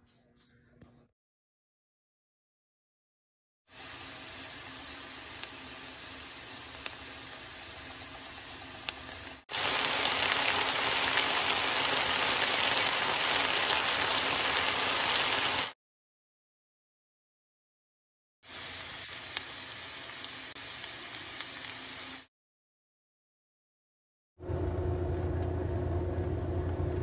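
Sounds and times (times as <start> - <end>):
onion sizzling in oil: 3.7 - 15.8, 18.4 - 22.3
potatoes frying: 3.7 - 15.8, 18.5 - 22.3.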